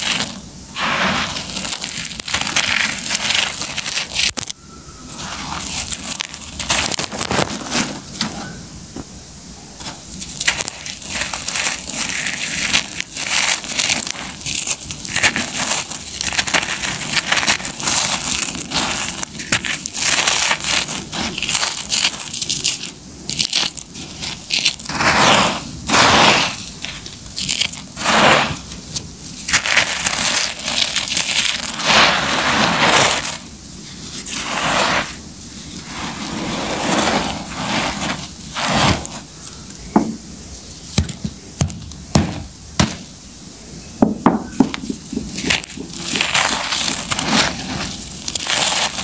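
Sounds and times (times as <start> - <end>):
grit falling onto rubble: 0.0 - 8.4, 9.8 - 40.2, 40.9 - 43.0, 44.0 - 49.0
concrete pieces snapping: 10.2 - 25.0, 25.9 - 31.9, 44.6 - 49.0.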